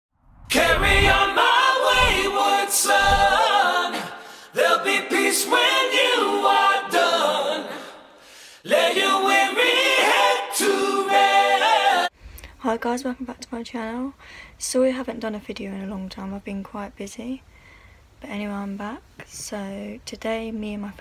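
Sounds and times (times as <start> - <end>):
group singing a cappella: 0.5 - 12.2.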